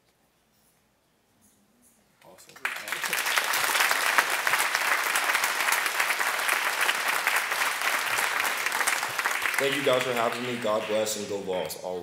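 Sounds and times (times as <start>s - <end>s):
audience applauding: 2.5s - 11.4s.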